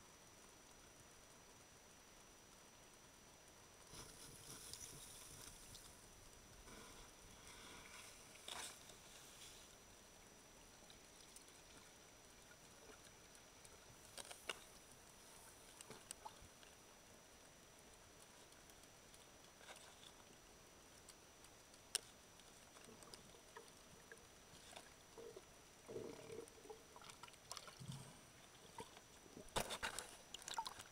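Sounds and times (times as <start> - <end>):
faint underwater clicks: 10.5 - 30.9.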